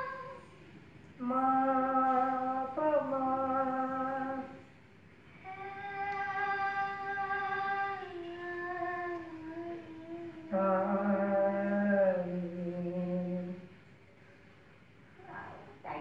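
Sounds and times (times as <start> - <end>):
person singing long held notes: 0.0 - 0.5, 1.2 - 4.6, 5.4 - 13.7.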